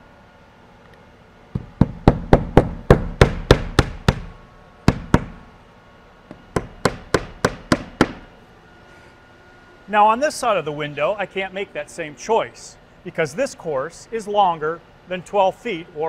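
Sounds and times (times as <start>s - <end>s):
hammer driving nails: 1.6s - 4.3s, 6.5s - 8.3s.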